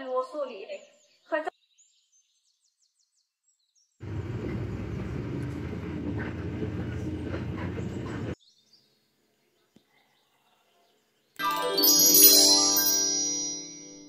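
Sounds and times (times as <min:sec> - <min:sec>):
bus engine and road rumble: 0:04.0 - 0:08.4.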